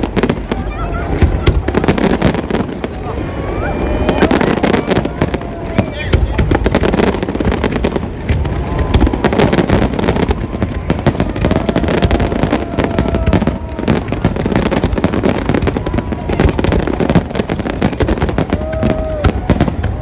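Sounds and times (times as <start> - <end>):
fireworks bangs and crackling: 0.0 - 20.0.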